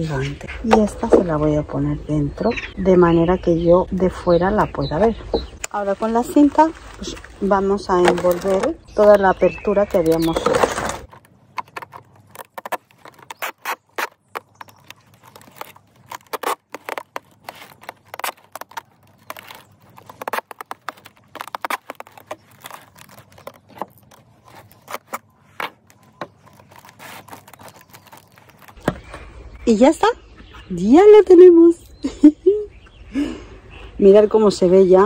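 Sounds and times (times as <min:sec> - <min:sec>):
thin plastic crinkling: 0:05.6 - 0:29.2
adhesive tape pulled off roll: 0:10.0 - 0:28.9.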